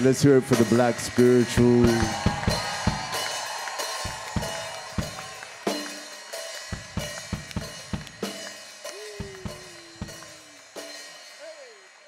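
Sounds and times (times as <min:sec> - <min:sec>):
snare drum strikes: 0:00.6 - 0:06.0, 0:06.6 - 0:10.3
bass drum strikes: 0:01.5 - 0:03.2.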